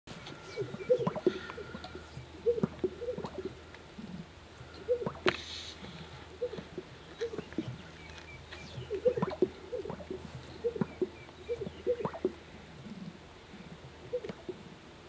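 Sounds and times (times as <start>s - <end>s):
low bird coos: 0.1s - 14.8s
sharp air sac pops: 5.2s - 5.8s.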